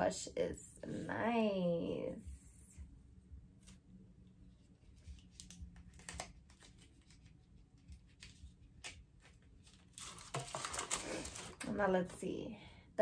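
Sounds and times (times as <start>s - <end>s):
paper rustling: 4.7s - 11.7s.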